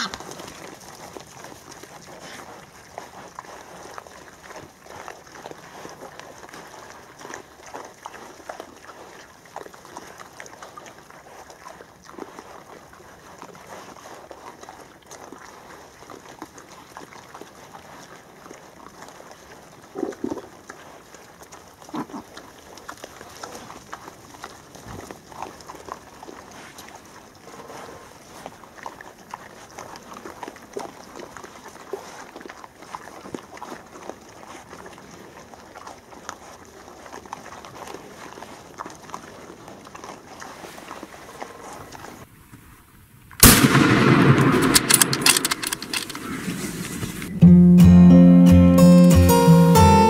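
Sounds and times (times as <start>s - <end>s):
wild boar grunts: 0.0s - 0.7s, 21.7s - 22.6s
small crunching clicks: 43.4s - 46.4s.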